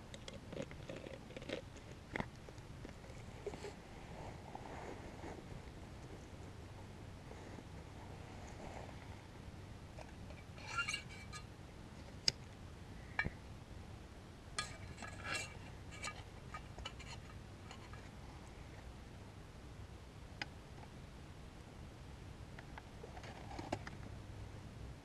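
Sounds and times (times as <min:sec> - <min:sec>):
metal cooking gear clinking: 0:10.3 - 0:11.5, 0:14.6 - 0:18.0.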